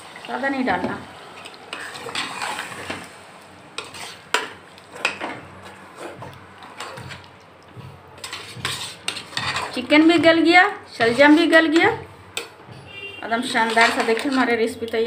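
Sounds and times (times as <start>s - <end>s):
metal ladle scraping a pot: 1.7s - 3.2s, 3.8s - 7.3s, 8.2s - 12.5s, 13.3s - 14.6s.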